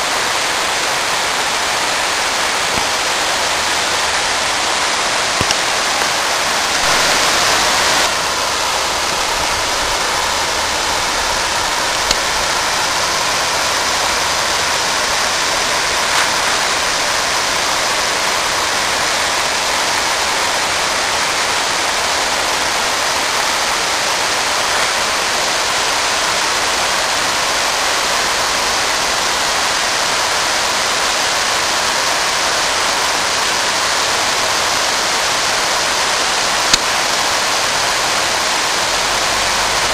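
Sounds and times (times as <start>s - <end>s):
flowing water rushing: 0.0s - 39.9s.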